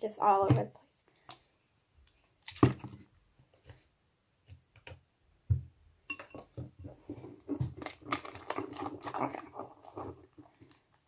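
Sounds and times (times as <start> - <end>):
slime squishing and crackling: 6.8 - 11.0.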